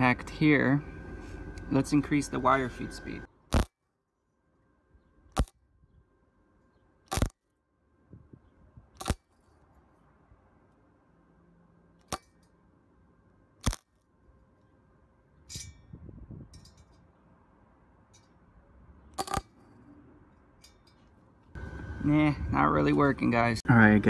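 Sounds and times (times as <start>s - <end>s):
welder arc pops: 3.5s - 3.7s, 5.3s - 5.6s, 7.1s - 7.4s, 9.0s - 9.2s, 13.6s - 13.9s.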